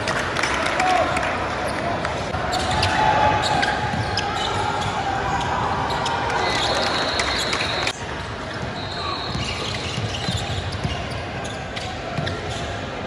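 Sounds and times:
players' voices: 0.0s - 13.0s
shoes squeaking on court: 2.5s - 12.8s.

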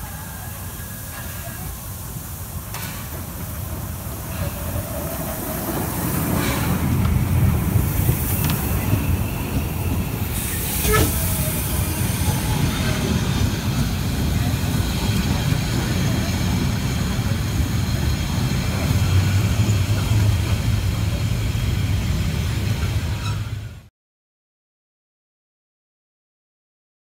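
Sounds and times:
steam hissing: 0.0s - 23.6s
train carriages rumbling: 0.0s - 23.9s
faint wheel squeal: 8.0s - 13.3s, 23.1s - 23.7s.

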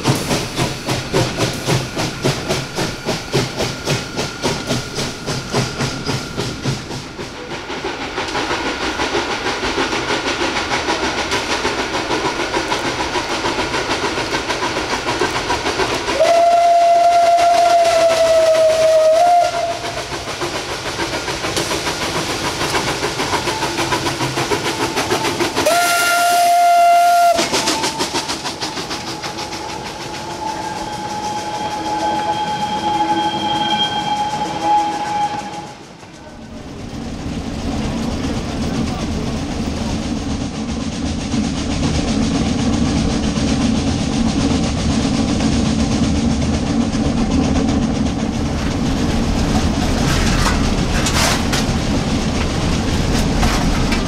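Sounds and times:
steam locomotive chuffing: 0.0s - 54.0s
steam whistle blast: 16.1s - 20.0s, 25.3s - 28.4s, 29.1s - 36.0s.

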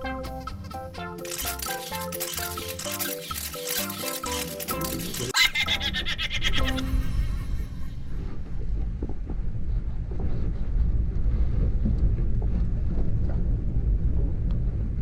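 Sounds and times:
boat low rumble: 7.7s - 15.0s.

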